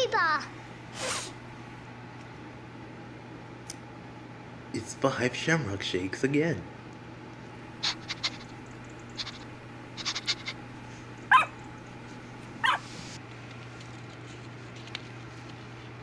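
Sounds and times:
high dog-like yips: 7.8 - 8.6, 10.0 - 10.6, 11.3 - 11.6, 12.6 - 13.0
paper handling clicks: 13.2 - 16.0.

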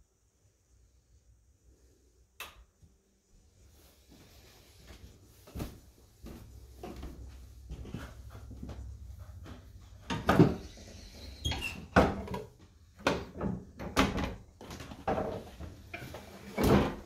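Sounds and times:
footsteps on wooden stairs: 4.9 - 10.5.

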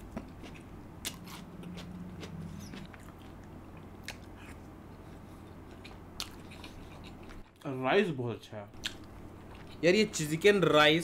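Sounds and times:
low steady hum: 0.0 - 11.0
mouth chewing food: 0.1 - 7.6, 8.8 - 9.8.

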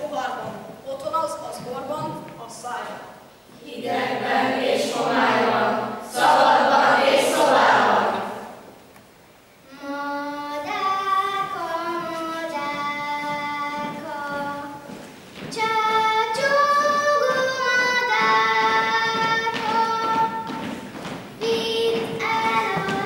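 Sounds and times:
girl singing slow melody: 9.6 - 20.8, 21.4 - 23.0.

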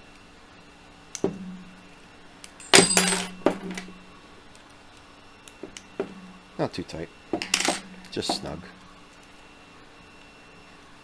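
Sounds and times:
ringing metallic clink: 2.6 - 3.9
metal tools clinking: 2.6 - 4.0, 7.4 - 8.8.

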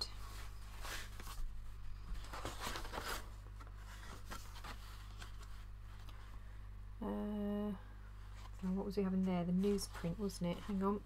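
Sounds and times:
faint low hum: 0.0 - 11.0
paper rustling: 0.2 - 6.4, 8.3 - 11.0.

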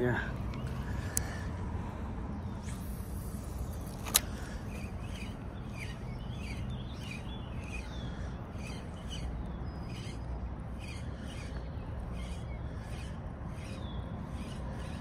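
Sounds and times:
birds chirping: 0.0 - 15.0
reel bail click: 3.8 - 7.9.

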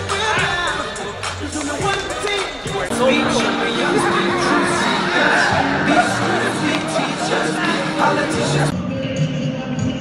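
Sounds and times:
background music with singing: 0.0 - 10.0
deep held bass line: 2.9 - 8.7.

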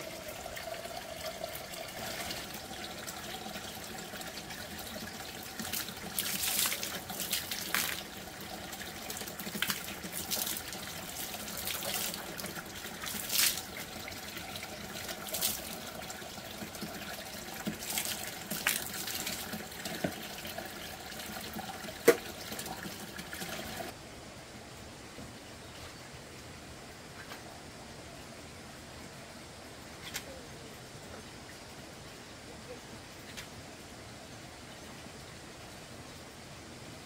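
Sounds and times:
water spat out splashing: 5.7 - 8.0.

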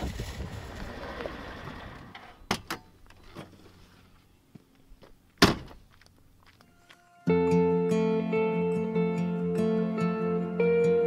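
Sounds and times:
door slamming shut: 5.4 - 5.8.

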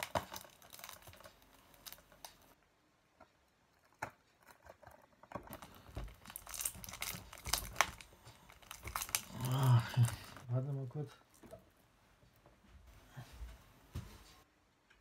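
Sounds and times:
plastic wrap crinkling and tearing: 0.0 - 2.6, 5.4 - 11.6.

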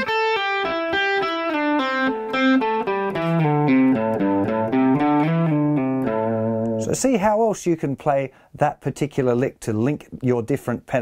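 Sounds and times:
clean electric guitar notes: 0.0 - 6.9.

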